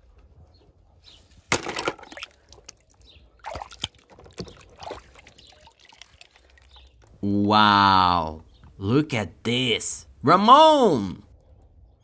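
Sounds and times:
water splashing and trickling: 1.2s - 7.5s
hand sloshing in water: 3.4s - 6.6s.

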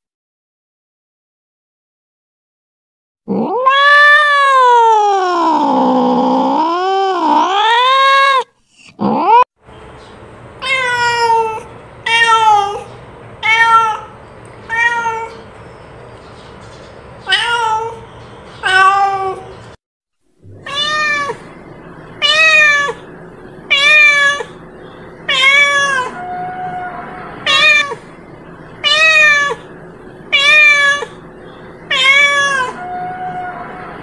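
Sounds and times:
cat meowing: 3.3s - 9.4s, 10.6s - 15.4s, 17.2s - 18.0s, 18.6s - 19.5s, 20.5s - 21.5s, 22.2s - 23.0s, 23.7s - 24.6s, 25.3s - 28.1s, 28.8s - 29.7s, 30.3s - 31.2s, 31.9s - 34.0s.

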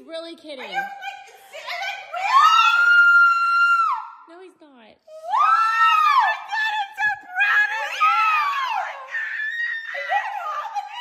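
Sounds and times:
women screaming with joy: 1.5s - 4.1s, 5.1s - 11.0s.

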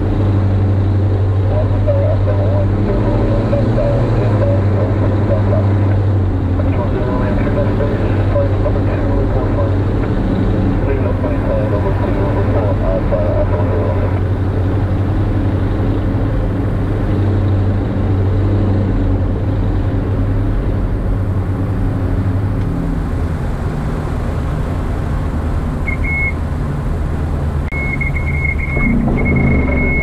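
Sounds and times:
aircraft engines droning: 0.0s - 30.0s
stall warning tone: 25.8s - 26.4s, 27.7s - 30.0s.

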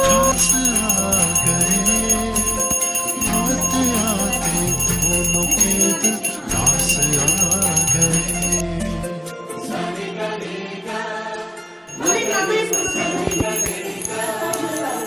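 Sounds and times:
bells jingling and ringing: 0.0s - 8.6s, 11.9s - 15.0s
background music melody: 0.0s - 15.0s.

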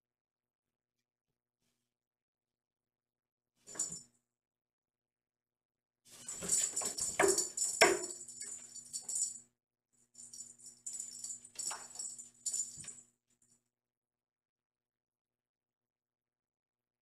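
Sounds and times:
toy ball rattling across floor: 6.2s - 9.4s, 10.2s - 13.0s.

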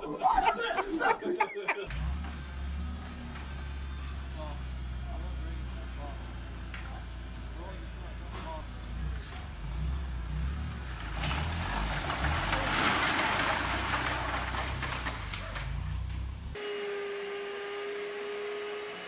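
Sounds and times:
crates and bottles crashing down: 11.0s - 16.3s
carpet cleaner motor whining: 16.6s - 19.0s.

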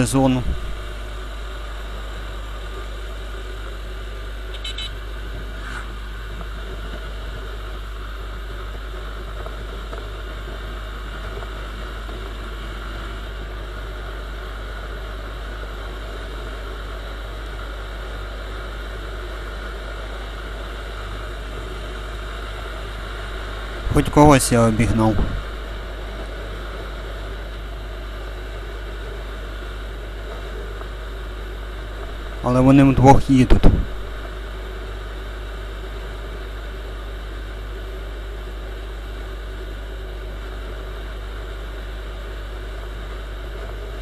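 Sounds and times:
wind rumble on microphone: 0.4s - 0.9s.

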